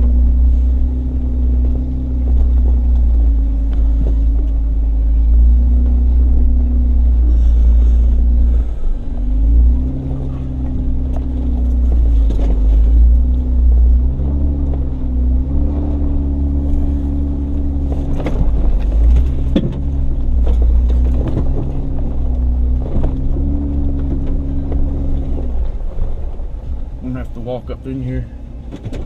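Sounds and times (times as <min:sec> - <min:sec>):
engine running at low revs: 0:00.0 - 0:29.0
vehicle knocking over bumps: 0:17.8 - 0:25.8.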